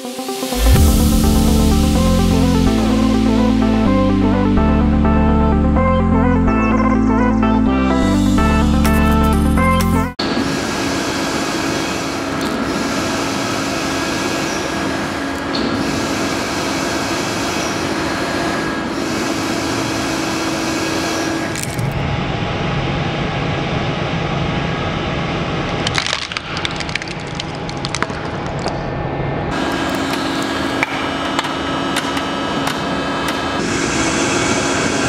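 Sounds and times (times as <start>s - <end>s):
toy car cracking and crunching: 25.8s - 28.8s
hydraulic press humming: 29.5s - 35.0s.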